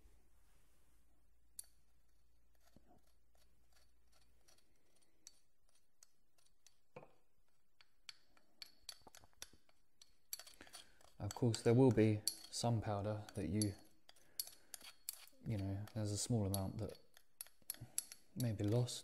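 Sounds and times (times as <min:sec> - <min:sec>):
tool scraping ceramic mortar: 0:01.6 - 0:19.0.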